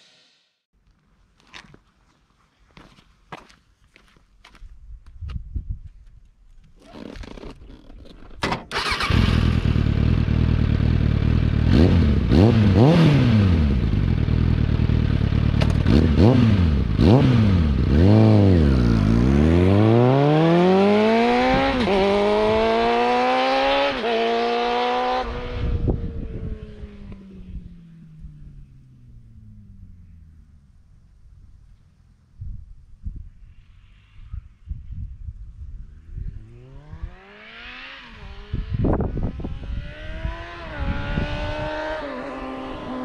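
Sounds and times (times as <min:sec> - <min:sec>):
motorcycle engine revving: 0:08.7 - 0:30.7, 0:36.3 - 0:43.0
motorcycle pulling away: 0:08.7 - 0:30.8, 0:36.3 - 0:43.0.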